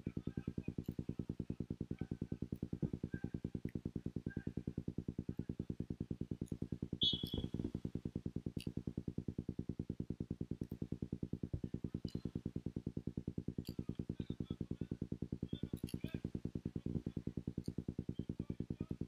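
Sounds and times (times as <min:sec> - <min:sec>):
referee's whistle: 0:07.0 - 0:07.6.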